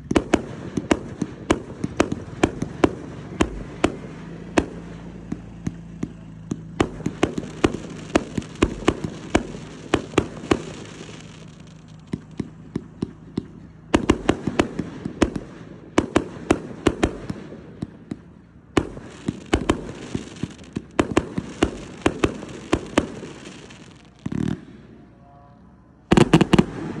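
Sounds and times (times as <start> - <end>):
firework crackling: 0.0 - 25.1, 26.1 - 27.0
aerial firework bangs: 26.1 - 27.0.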